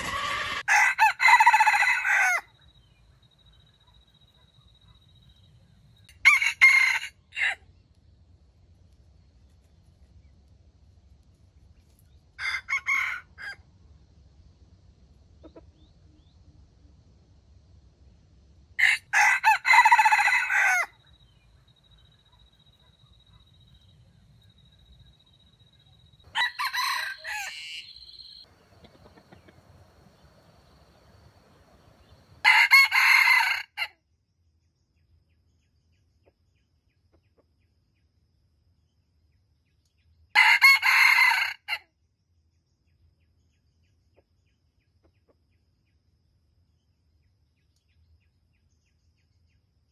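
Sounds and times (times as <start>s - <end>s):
roosters crowing: 0.0s - 2.6s, 6.1s - 7.7s, 12.4s - 13.6s, 18.8s - 21.0s, 26.3s - 33.9s, 40.4s - 41.8s.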